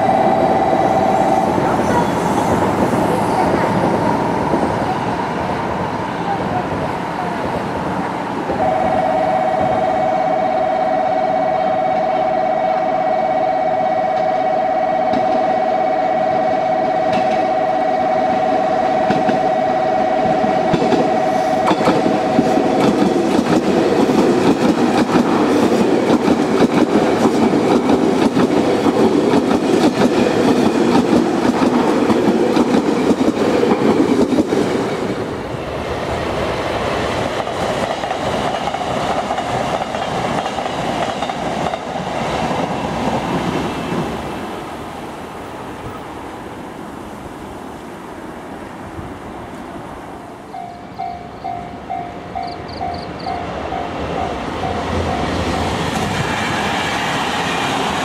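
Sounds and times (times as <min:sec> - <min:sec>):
two-pitch warning tone: 0:00.0 - 0:02.3, 0:08.6 - 0:23.0, 0:50.5 - 0:55.4
train wheels rumbling on rails: 0:00.0 - 0:47.0, 0:48.9 - 0:58.0.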